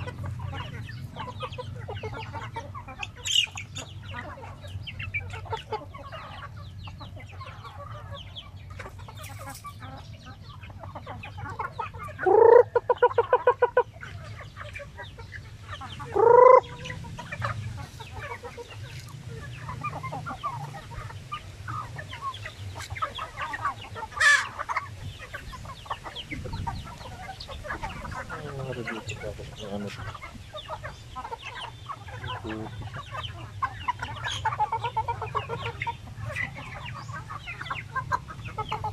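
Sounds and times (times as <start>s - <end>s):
chickens clucking and calling: 0.0s - 38.9s
loud bird call: 11.4s - 14.6s, 15.7s - 38.9s.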